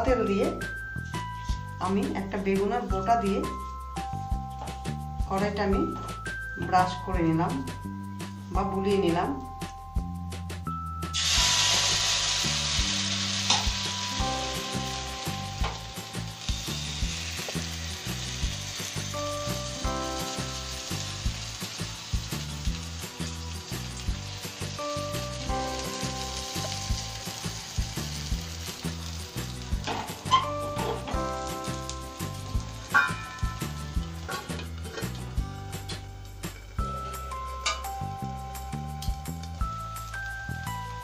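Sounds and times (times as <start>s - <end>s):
instrumental music with a beat: 0.5s - 1.9s, 3.4s - 8.6s, 9.3s - 41.0s
batter sizzling in a pan: 11.1s - 41.0s.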